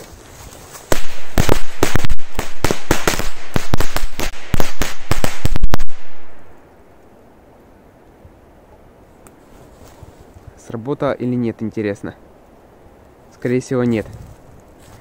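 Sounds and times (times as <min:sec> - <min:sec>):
firecrackers cracking in rapid volley: 0:00.9 - 0:06.5.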